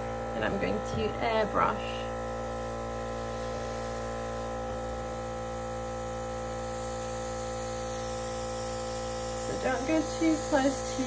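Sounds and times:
compressor electric hum: 0.0s - 11.0s.

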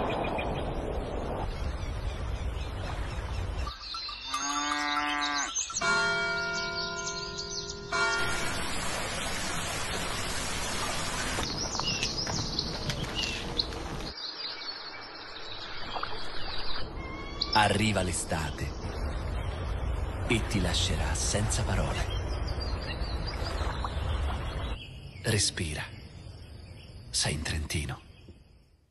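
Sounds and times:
birds chirping: 0.0s - 28.9s
rushing water: 7.9s - 11.8s, 13.0s - 24.8s.

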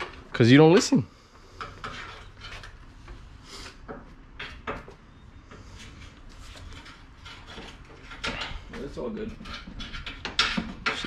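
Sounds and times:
tools knocking and clinking: 9.4s - 11.0s.

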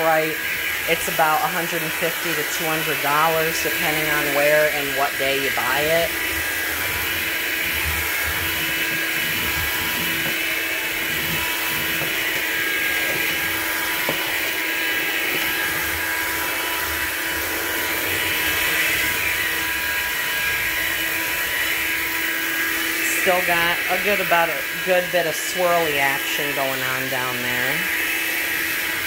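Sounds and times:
stick vacuum running on hard floor: 0.0s - 29.0s.

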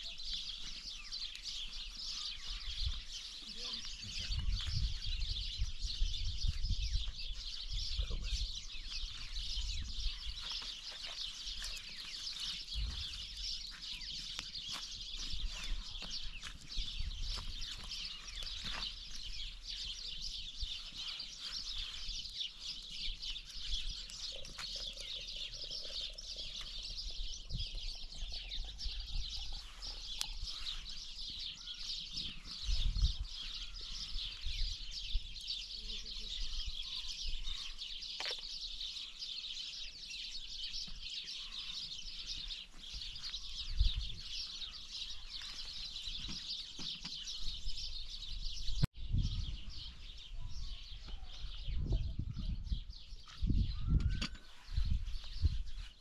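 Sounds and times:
small birds chirping: 0.0s - 56.0s.

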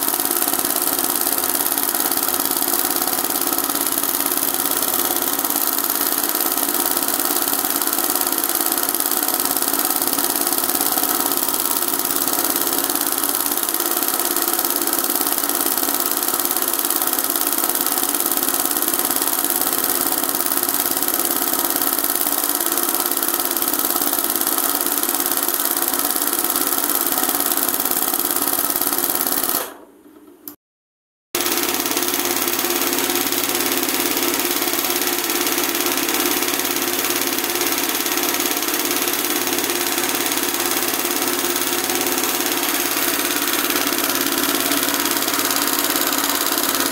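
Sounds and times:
embroidery machine whirring: 31.4s - 46.9s.

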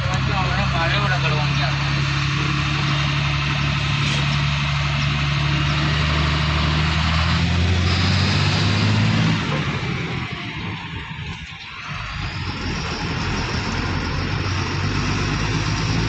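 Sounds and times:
large vehicle engine running: 0.0s - 16.0s.

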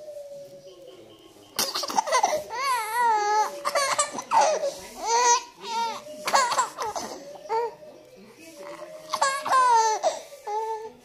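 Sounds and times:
baby laughing and squealing: 1.6s - 7.7s, 9.1s - 10.7s.

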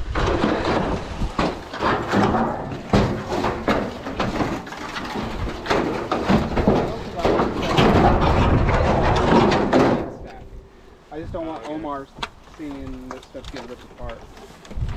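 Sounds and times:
tin sheets scraping and knocking: 0.0s - 10.3s.

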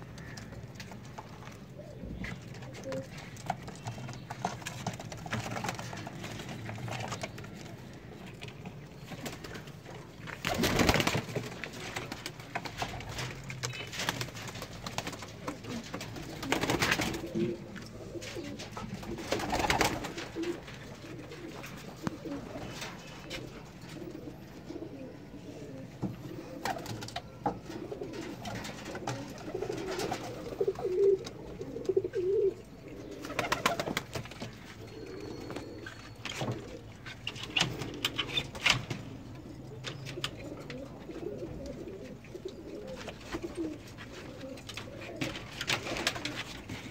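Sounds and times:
pigeons cooing: 0.0s - 46.9s
rustles: 27.7s - 46.9s.

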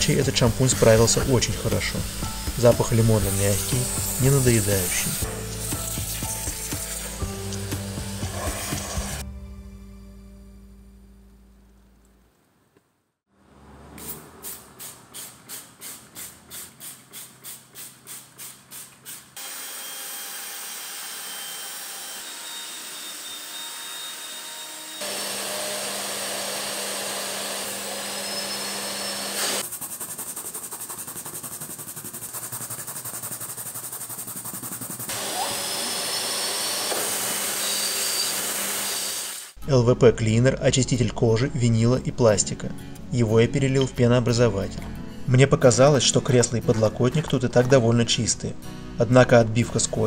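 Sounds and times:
drill spinning scrub brush: 0.0s - 9.2s, 19.4s - 39.6s
extractor wand sucking: 0.6s - 9.2s, 25.0s - 39.6s
rhythmic stroking on upholstery: 8.2s - 9.2s, 29.6s - 35.8s.

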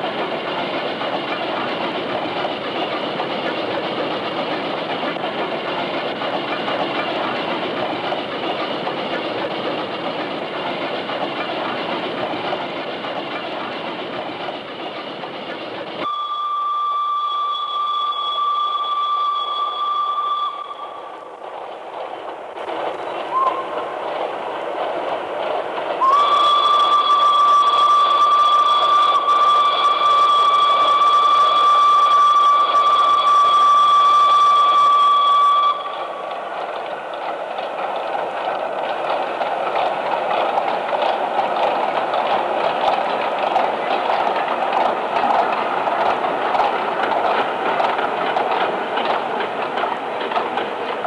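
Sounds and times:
steam locomotive running: 0.0s - 51.0s
steam whistle: 16.0s - 21.5s, 23.2s - 24.0s, 26.0s - 36.5s.

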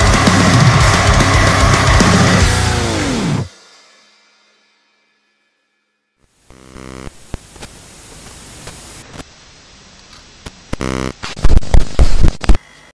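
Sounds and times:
faint hum: 6.2s - 12.9s
static-like hiss: 6.2s - 12.9s
sharp clicks and crackles: 7.0s - 9.3s, 10.0s - 12.6s.

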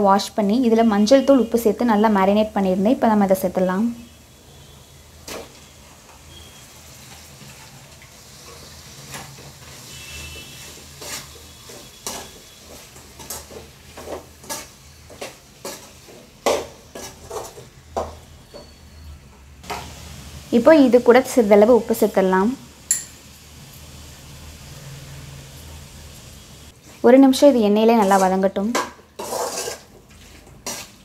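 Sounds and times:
prawns sizzling in oil: 2.6s - 31.0s
spatula knocking and scraping pan: 8.5s - 18.8s, 27.9s - 31.0s.

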